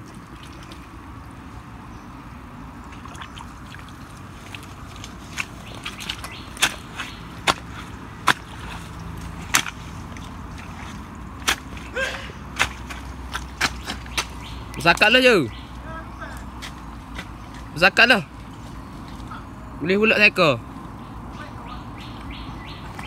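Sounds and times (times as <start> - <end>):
snaps and clicks in mud: 4.4 - 11.9, 12.5 - 15.1, 16.3 - 17.7.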